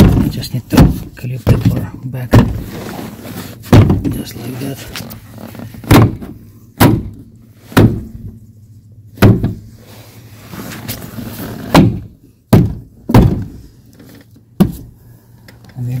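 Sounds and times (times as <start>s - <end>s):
hand striking plastic panel: 3.7s - 4.1s, 5.8s - 7.2s, 9.2s - 9.6s, 11.8s - 13.5s.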